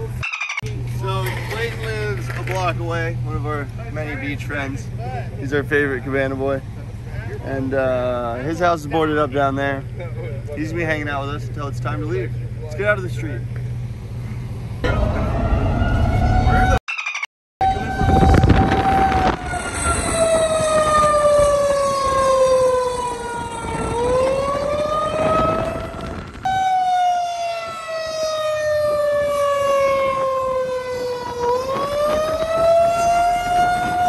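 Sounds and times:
siren wailing: 0:14.8 - 0:34.0.

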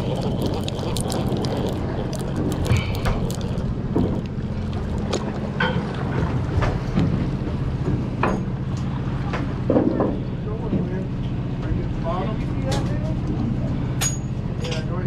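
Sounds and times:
boat engine humming: 0:00.0 - 0:12.6.

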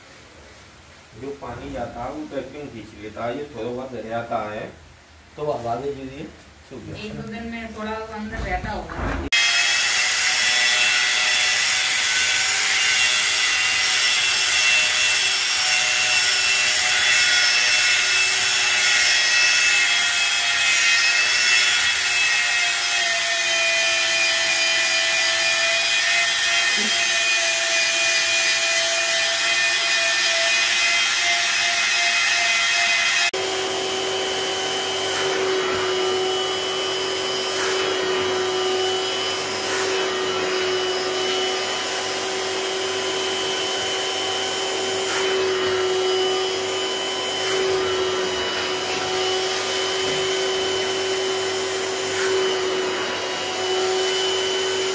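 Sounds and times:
rotary brush machine scrubbing: 0:23.4 - 0:54.9
vacuum humming: 0:31.1 - 0:54.9.

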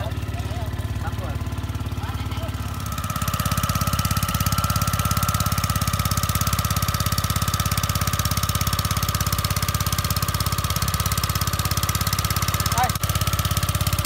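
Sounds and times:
small petrol engine running: 0:00.0 - 0:14.0
water pumping: 0:00.0 - 0:14.0.

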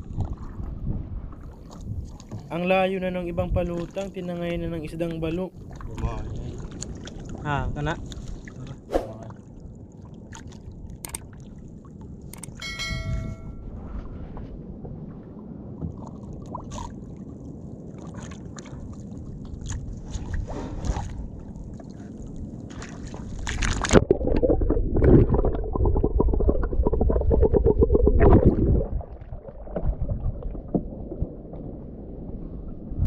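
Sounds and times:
water lapping against boat: 0:00.0 - 0:12.5, 0:13.8 - 0:24.0.

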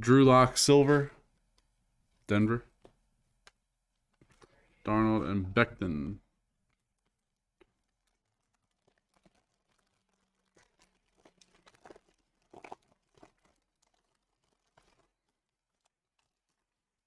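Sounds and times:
foil wrapper tearing and crinkling: 0:06.7 - 0:17.0.

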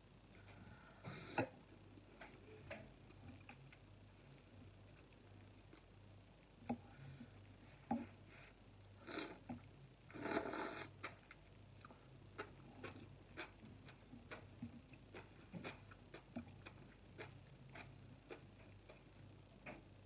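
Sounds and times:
person slurping noodles: 0:09.0 - 0:09.4, 0:10.1 - 0:10.9
chewing with wet mouth clicks: 0:11.0 - 0:19.8.

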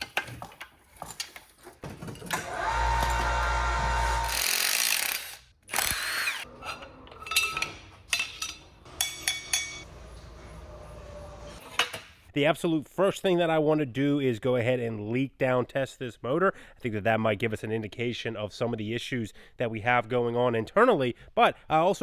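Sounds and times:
power tool running: 0:02.4 - 0:06.5.

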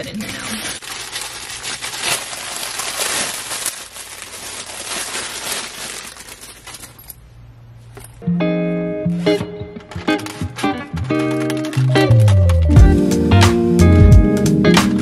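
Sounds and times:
plastic packaging crinkling: 0:00.0 - 0:07.2, 0:09.2 - 0:12.8.

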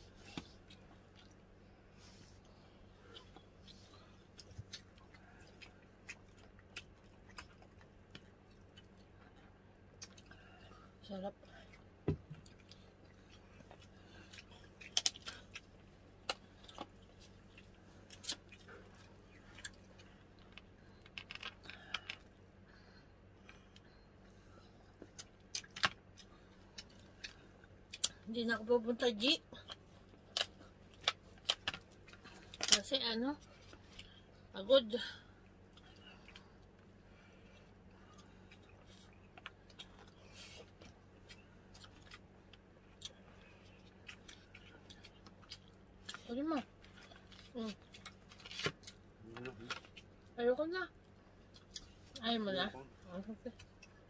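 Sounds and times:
faint steady hum: 0:00.0 - 0:54.0
chewing: 0:03.0 - 0:10.9, 0:11.6 - 0:22.4, 0:35.4 - 0:50.3.

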